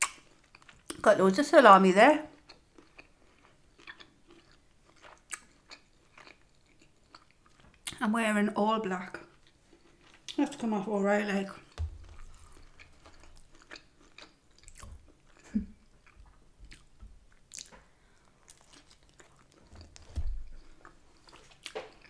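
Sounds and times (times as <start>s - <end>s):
chewing and biting pizza: 2.3s - 7.9s, 11.6s - 22.0s.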